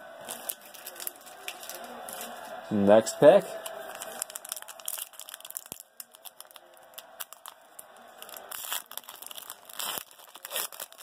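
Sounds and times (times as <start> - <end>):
foil wrapper crinkling: 0.2 - 2.6, 3.6 - 11.0.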